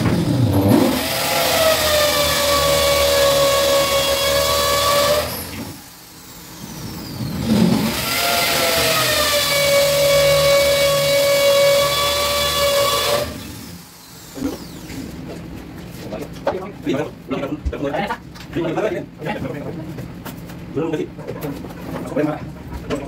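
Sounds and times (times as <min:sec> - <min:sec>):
power drill motor whining: 0:00.7 - 0:14.9.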